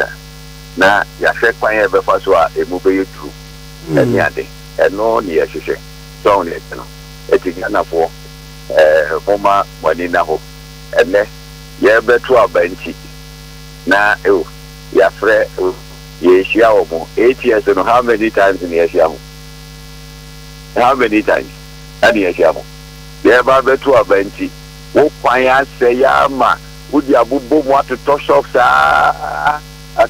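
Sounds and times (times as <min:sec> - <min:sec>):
electrical mains hum: 0:00.0 - 0:30.0
person talking over telephone: 0:03.9 - 0:04.3.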